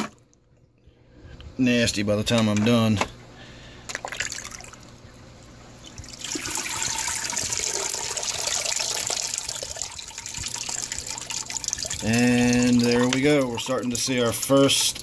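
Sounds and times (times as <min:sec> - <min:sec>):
water pouring and trickling: 0:04.0 - 0:05.0, 0:05.8 - 0:15.0.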